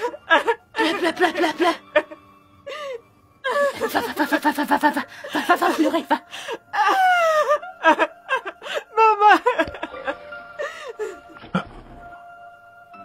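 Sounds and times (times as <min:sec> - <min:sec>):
women laughing: 0:00.0 - 0:02.2, 0:03.5 - 0:10.3.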